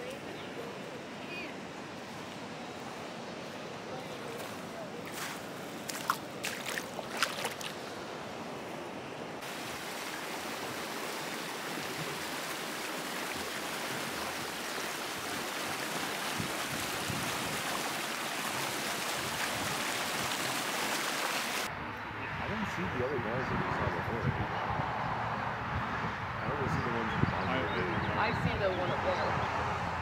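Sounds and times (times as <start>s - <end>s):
stream running over rocks: 0.0s - 8.4s, 9.4s - 21.7s
sharp splashes in shallow water: 4.3s - 8.0s.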